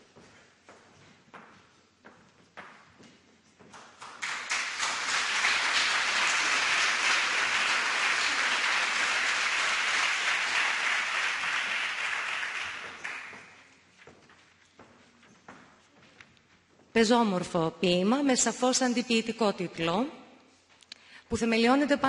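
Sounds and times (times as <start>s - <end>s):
audience applauding: 4.0s - 13.7s.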